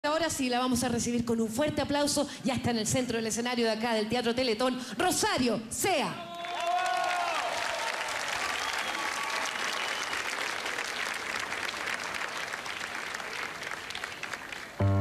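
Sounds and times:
audience applauding: 6.3s - 15.0s.

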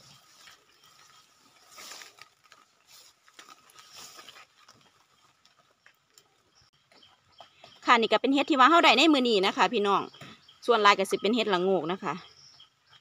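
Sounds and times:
footsteps through dry leaves: 0.0s - 5.4s.

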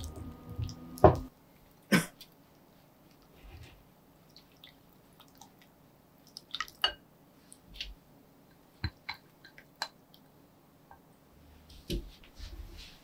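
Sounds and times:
soft wet squishing: 1.5s - 10.3s.

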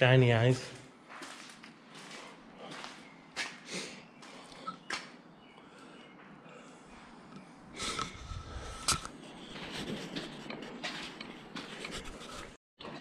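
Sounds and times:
footsteps on rubble and grit: 1.0s - 3.6s.

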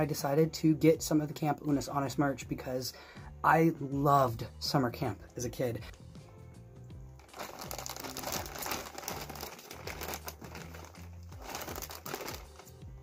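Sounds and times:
background music: 0.0s - 13.0s
plastic bag crinkling: 7.2s - 12.8s.

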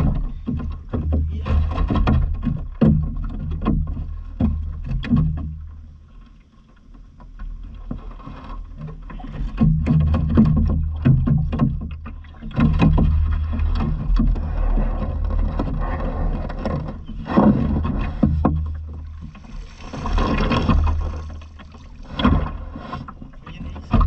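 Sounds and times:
low rumble: 12.6s - 22.8s
water splashing and dripping: 17.5s - 23.0s.

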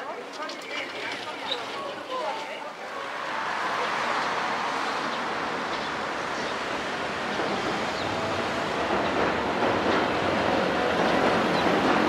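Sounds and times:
train wheels rushing on rail: 3.0s - 12.0s.

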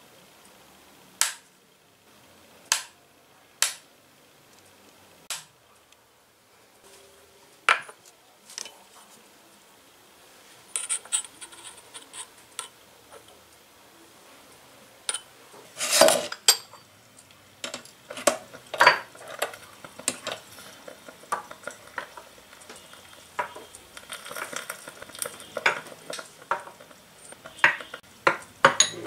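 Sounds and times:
metal clinks and scrapes on glass: 28.6s - 29.0s.

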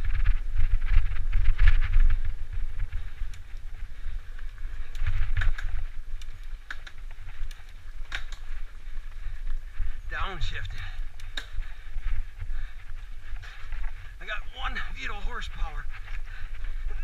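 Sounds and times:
mountain bike rumble on dirt: 0.0s - 17.0s
tyres clicking and rattling: 2.9s - 14.2s.

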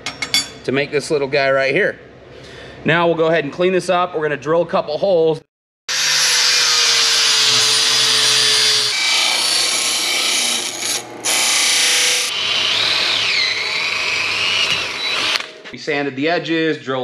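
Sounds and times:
angle grinder on steel: 5.9s - 15.4s
disc sander grinding metal: 5.9s - 15.4s
cordless drill whining: 11.3s - 15.5s.

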